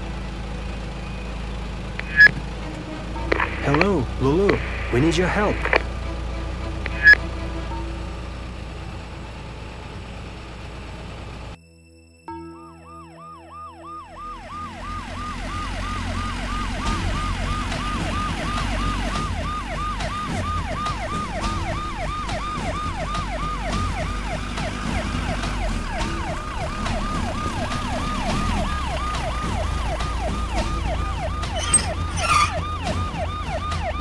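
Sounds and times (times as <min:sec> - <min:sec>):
low rumble: 0:01.9 - 0:11.6
ambulance siren: 0:02.0 - 0:10.8, 0:12.7 - 0:34.0.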